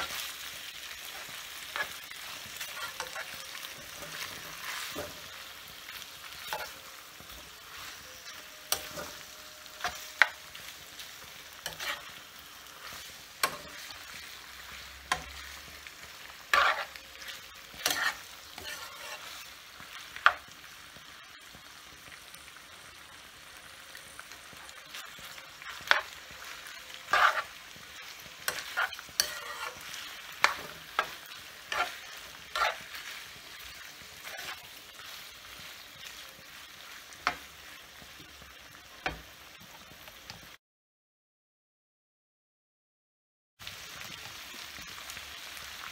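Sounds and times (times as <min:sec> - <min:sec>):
spoon scraping frying pan: 0:00.0 - 0:20.6, 0:25.0 - 0:37.7
frying sizzle: 0:00.0 - 0:40.6, 0:43.6 - 0:45.9.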